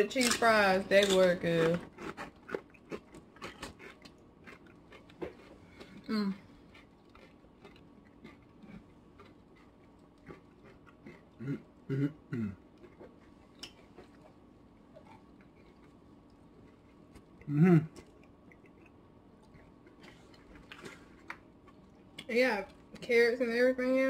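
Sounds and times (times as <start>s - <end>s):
people chewing crunchy chips: 0.0s - 23.0s
short low vocal sounds: 17.4s - 18.0s.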